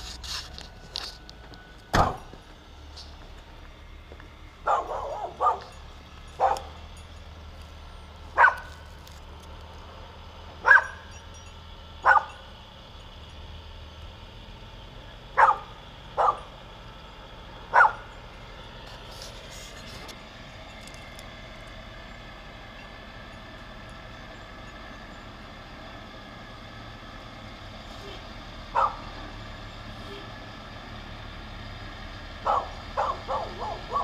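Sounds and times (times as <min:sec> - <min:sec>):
low engine hum: 0:00.0 - 0:34.0
dog barking: 0:04.6 - 0:05.7, 0:06.4 - 0:06.7, 0:08.4 - 0:08.7, 0:10.6 - 0:11.0, 0:12.0 - 0:12.4, 0:15.4 - 0:16.5, 0:17.7 - 0:18.1, 0:28.7 - 0:29.1, 0:32.4 - 0:34.0.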